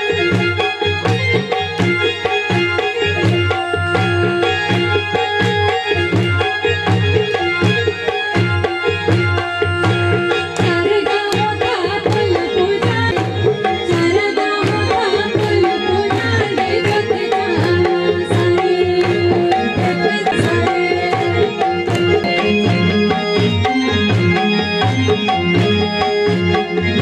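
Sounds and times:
electronic keyboard sustained notes: 0.0 - 27.0
hand drum beat: 0.2 - 27.0
person singing: 13.9 - 23.2.

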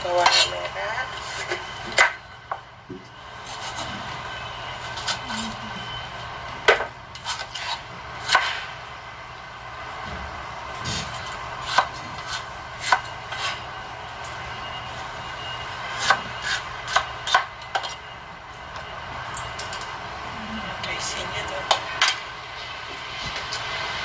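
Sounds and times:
knife cutting on cutting board: 10.9 - 13.6.

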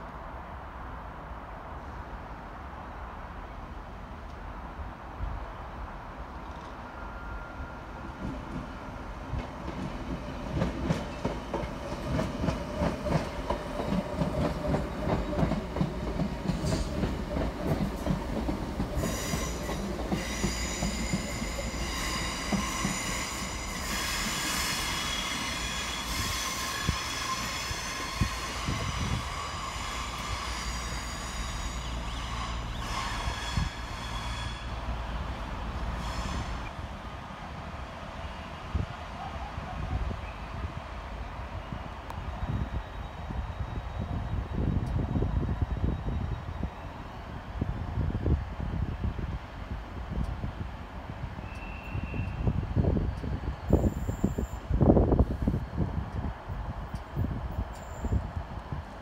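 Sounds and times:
steel wheel squeal: 19.0 - 34.9.

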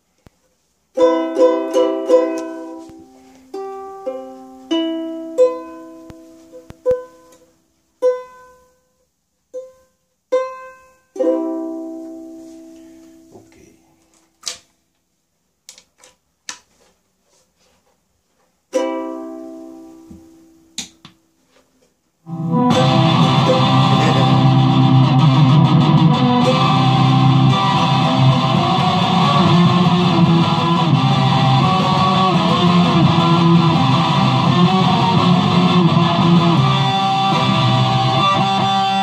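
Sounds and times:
electric ukulele chords: 0.9 - 7.4, 9.5 - 13.0, 18.7 - 20.2, 22.2 - 39.0.

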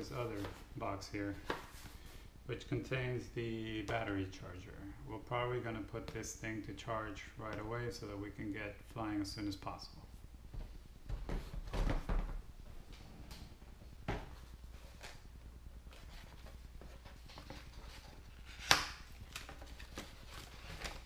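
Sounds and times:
cardboard packaging rustling: 15.8 - 21.0.

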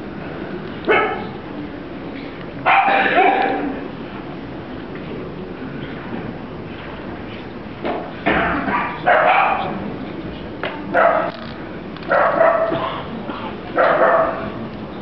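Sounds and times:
puppy barking: 0.9 - 1.4, 2.6 - 3.7, 8.4 - 9.8, 10.9 - 11.3, 12.1 - 13.0, 13.8 - 14.6.

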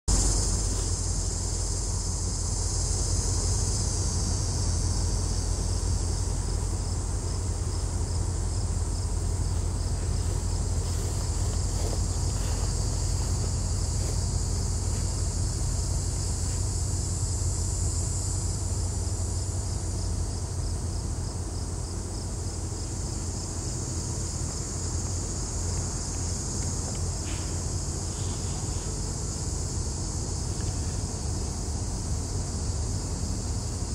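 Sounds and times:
diesel locomotives rumbling: 0.1 - 33.9
insects chirping: 0.1 - 33.9.

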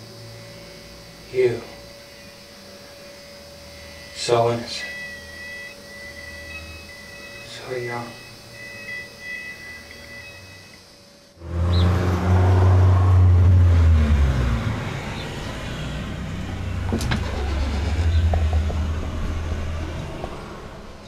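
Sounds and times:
loud low droning rumble: 11.4 - 21.0.

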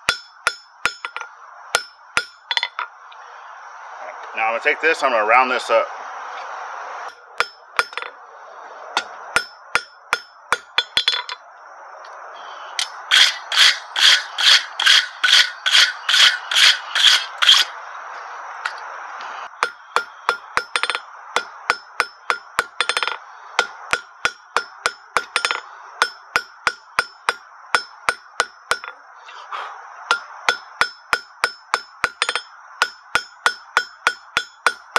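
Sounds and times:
hammer striking metal on anvil: 0.0 - 2.9, 7.1 - 8.1, 9.0 - 11.4, 12.8 - 17.7, 19.6 - 29.0, 30.1 - 34.9
steady rushing noise: 0.0 - 34.9.

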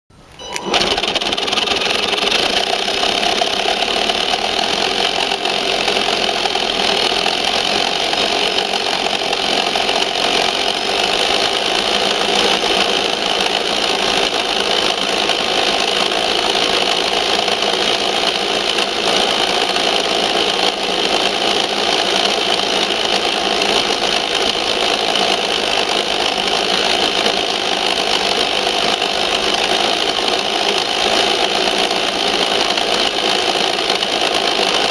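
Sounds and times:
electric motor whining: 0.3 - 16.1.

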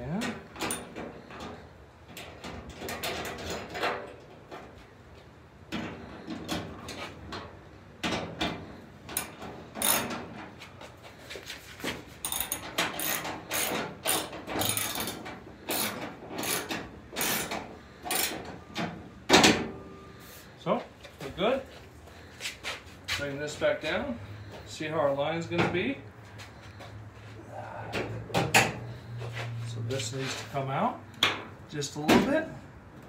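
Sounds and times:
ratchet wrench clicking: 9.2 - 10.1, 12.2 - 18.4.

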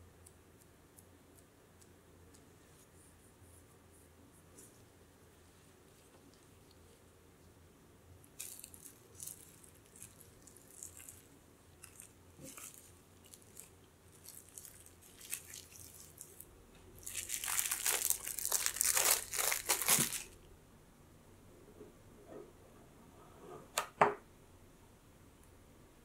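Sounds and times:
cling film crinkling: 8.4 - 16.4, 17.0 - 20.4.

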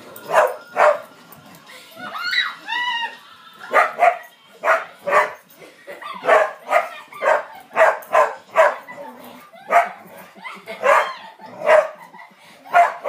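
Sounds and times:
dogs barking: 0.2 - 1.1, 3.6 - 12.1, 12.7 - 13.0.

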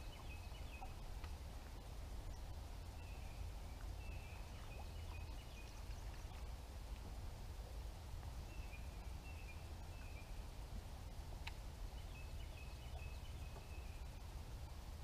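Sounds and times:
songbird calls and trills: 0.0 - 6.6, 8.4 - 10.6, 11.4 - 14.2
low steady rumble: 0.0 - 15.0.

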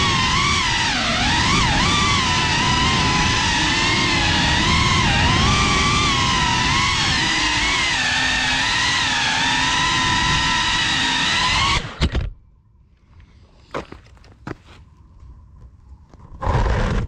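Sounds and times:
drone motors whining: 0.0 - 12.4.

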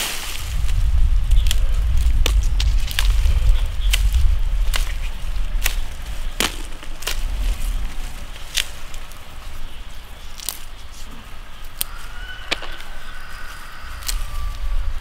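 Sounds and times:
pepper stems snapping: 1.3 - 9.2, 10.3 - 10.8, 11.8 - 12.9, 14.0 - 14.6.

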